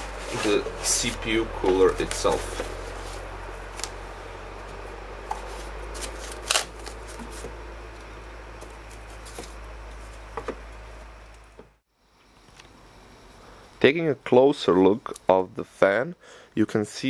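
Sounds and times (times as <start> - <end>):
packing rustling and scraping: 0.0 - 4.0, 5.4 - 7.6, 8.6 - 10.3
steady low hum: 0.0 - 17.0.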